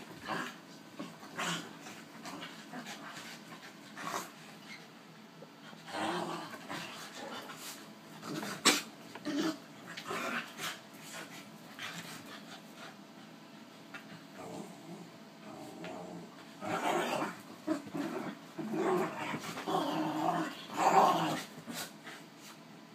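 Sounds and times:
dogs growling: 0.0s - 4.5s, 5.6s - 11.2s, 14.3s - 22.2s.

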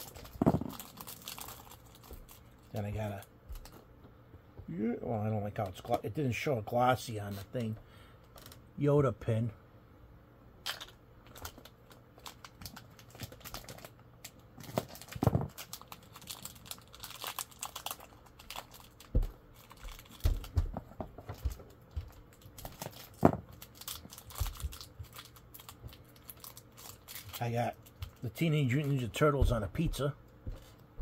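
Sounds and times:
packaging rustling: 0.0s - 2.8s, 10.7s - 29.6s.

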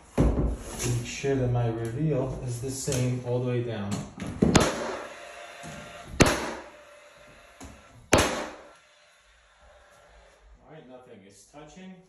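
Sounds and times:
nail gun firing: 4.5s - 5.3s, 6.2s - 6.9s, 8.1s - 8.8s.

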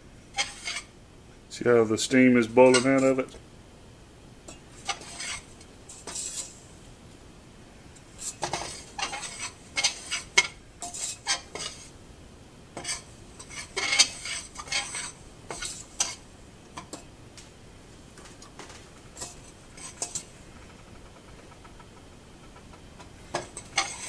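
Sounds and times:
metal spoon scraping powder in pan: 0.3s - 0.9s, 2.5s - 3.2s, 4.5s - 6.7s, 8.1s - 12.0s, 12.8s - 16.2s, 19.1s - 20.3s, 23.3s - 24.0s.

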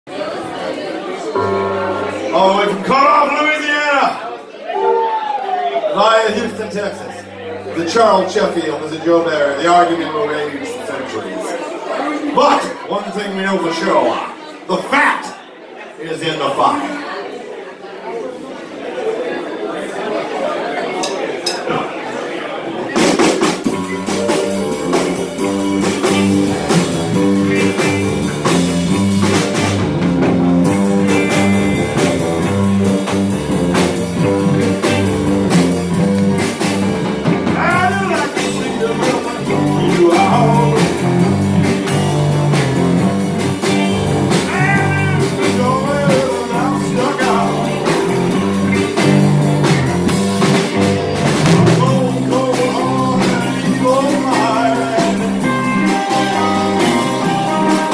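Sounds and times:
bent guitar notes: 1.4s - 2.4s, 4.7s - 11.4s, 23.5s - 57.9s
live band playing swamp pop: 1.4s - 3.9s, 4.7s - 11.5s, 22.8s - 57.9s.

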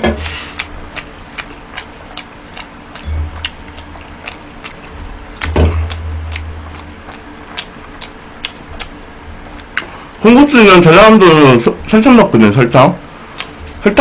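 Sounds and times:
person chewing with mouth clicks: 0.1s - 10.2s, 13.0s - 14.0s.

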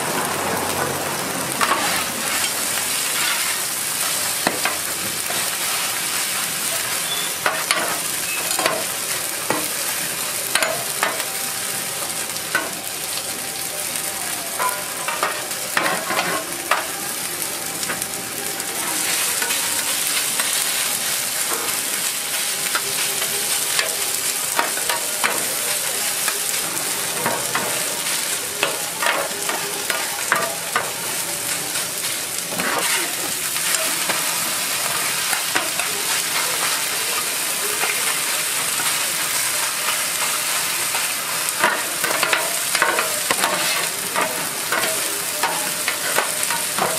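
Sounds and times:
pancakes sizzling on griddle: 0.0s - 46.9s
metal spatula scraping griddle: 1.6s - 6.4s, 14.6s - 16.9s, 32.5s - 34.2s, 39.6s - 46.9s.

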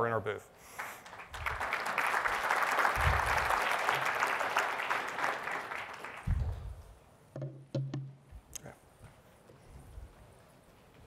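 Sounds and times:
audience applauding: 0.8s - 6.5s
dull low thumps: 6.3s - 6.9s.

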